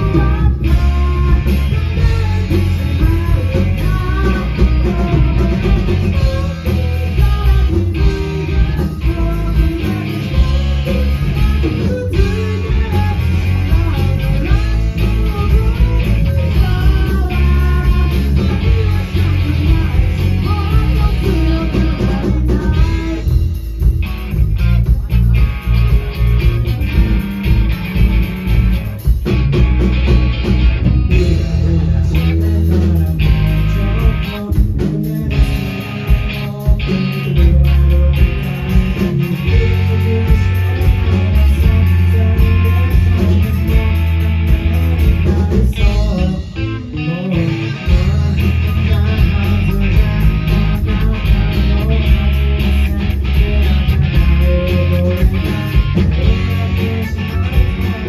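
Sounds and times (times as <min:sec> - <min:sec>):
bass guitar: 0:00.0 - 0:58.0
drums: 0:00.0 - 0:58.0
electric guitars: 0:00.0 - 0:58.0
lead singer singing: 0:00.0 - 0:58.0.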